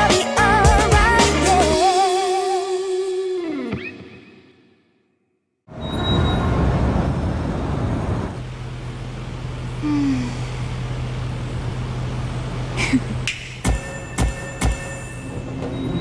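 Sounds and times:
faint short squeak: 5.7s - 6.5s.

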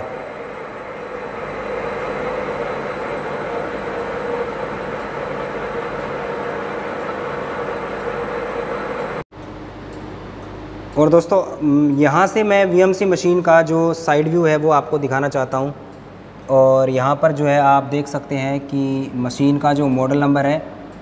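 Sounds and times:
milling machine spindle whirring: 0.0s - 9.2s.

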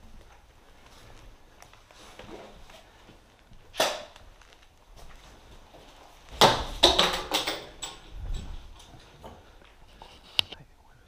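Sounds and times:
knocks and scrapes: 6.3s - 10.6s.

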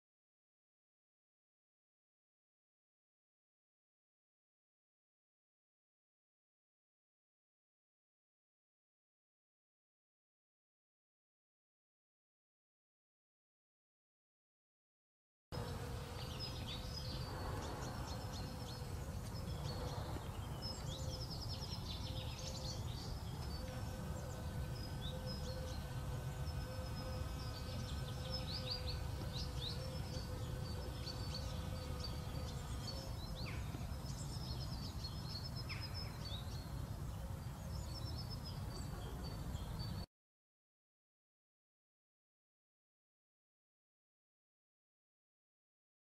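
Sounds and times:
faint steady hum: 15.6s - 40.1s
small birds chirping: 15.6s - 40.1s.

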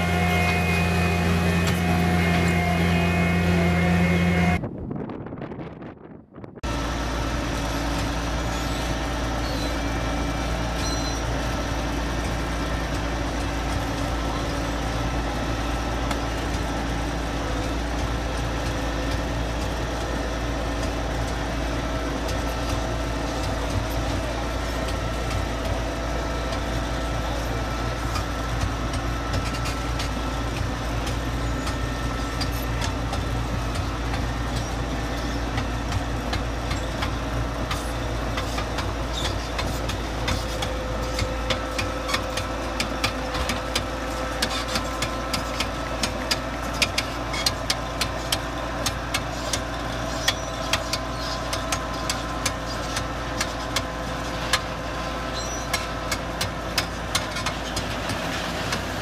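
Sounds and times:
steady whine: 0.0s - 5.6s
diesel engine rumbling: 0.0s - 59.0s.

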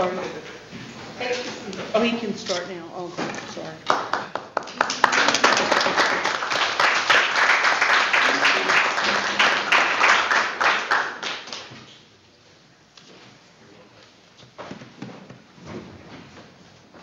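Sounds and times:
group applauding: 3.8s - 12.0s.

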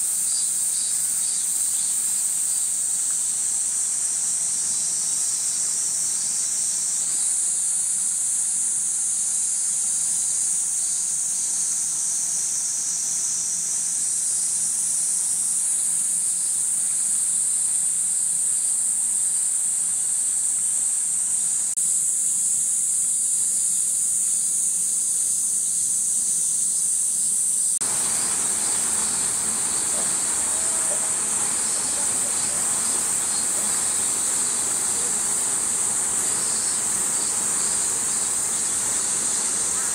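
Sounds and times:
cicadas calling: 0.0s - 39.9s.

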